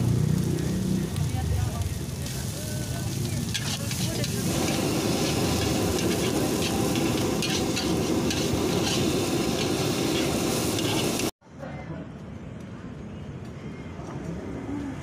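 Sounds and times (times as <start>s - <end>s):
rice sizzling in oil: 0.0s - 11.4s
metal spatula scraping wok: 3.2s - 11.3s.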